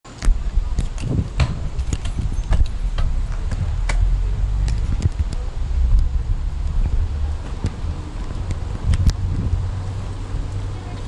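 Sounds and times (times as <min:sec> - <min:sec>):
walking clicks and knocks: 0:00.1 - 0:09.6
wind on microphone: 0:00.1 - 0:11.0.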